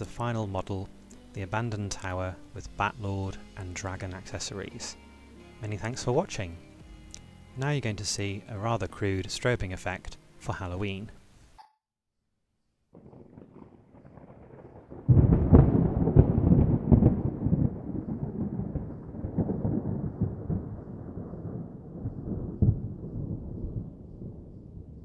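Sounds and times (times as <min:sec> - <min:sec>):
thunder rumbling and cracking: 0:13.0 - 0:25.0.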